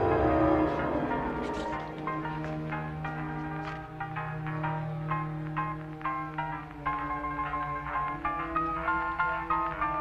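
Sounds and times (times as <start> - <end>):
suspenseful film score: 0.0 - 10.0.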